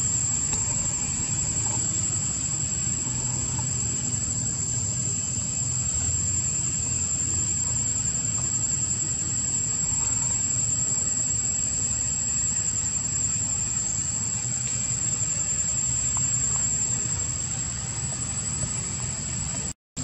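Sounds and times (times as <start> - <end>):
high-pitched insect drone: 0.0 - 19.7.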